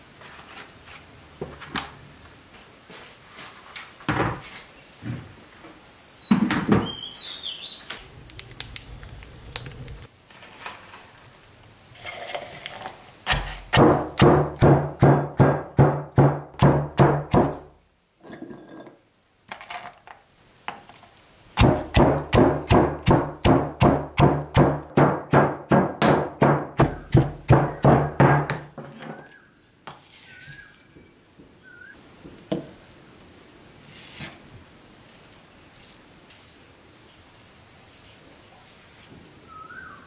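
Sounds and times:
stone pestle pounding in mortar: 13.3 - 17.6, 21.6 - 28.7.

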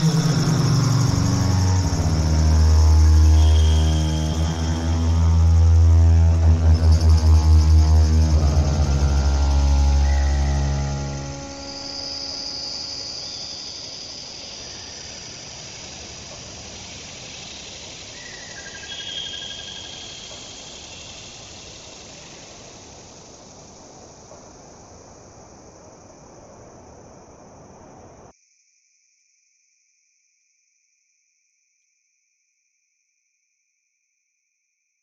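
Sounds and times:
thin high whistling tones: 0.0 - 15.1
electronic noise hiss: 0.0 - 28.3.

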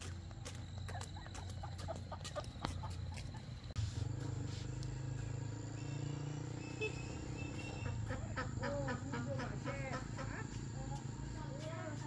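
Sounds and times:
chickens clucking: 0.9 - 3.6, 7.8 - 10.6.

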